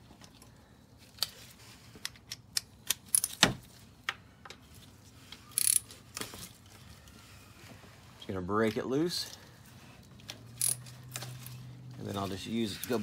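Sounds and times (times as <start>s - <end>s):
metallic tool clicks: 5.6s - 5.9s, 10.6s - 10.9s.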